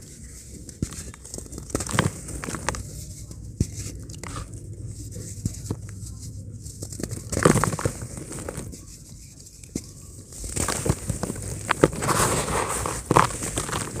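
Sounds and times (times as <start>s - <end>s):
dry cement crumbling by hand: 0.0s - 3.0s, 6.7s - 14.0s.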